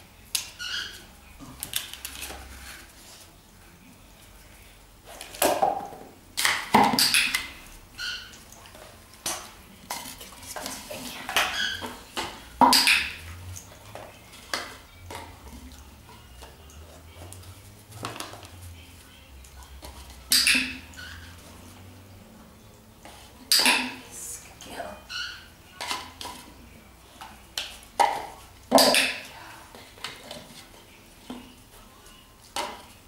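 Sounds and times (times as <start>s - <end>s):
dog bowls knocking and clinking: 11.3s - 13.3s.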